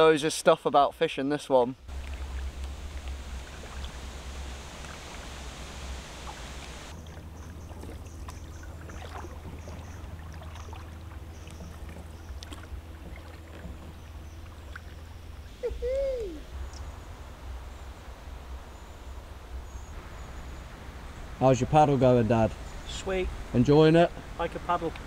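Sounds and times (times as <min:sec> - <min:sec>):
water dripping and trickling: 0:01.9 - 0:15.6
paddles stroking through water: 0:01.9 - 0:25.0
steady low rumble: 0:01.9 - 0:25.0.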